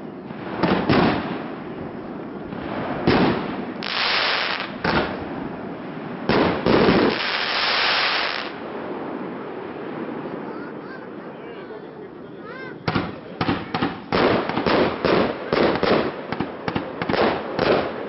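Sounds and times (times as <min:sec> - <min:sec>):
firework hissing crackle: 0:00.0 - 0:11.0.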